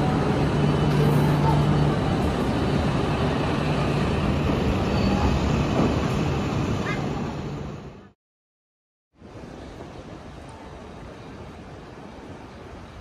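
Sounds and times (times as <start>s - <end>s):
train mechanical hum and rumble: 0.0s - 8.1s.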